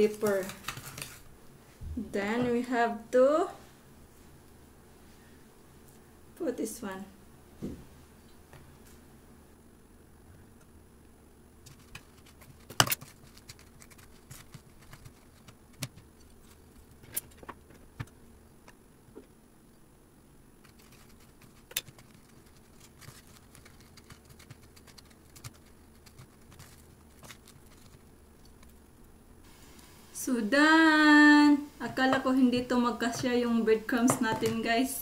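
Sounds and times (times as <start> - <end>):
rustling breadcrumbs: 0.0 - 1.3, 11.7 - 17.0, 20.6 - 28.8.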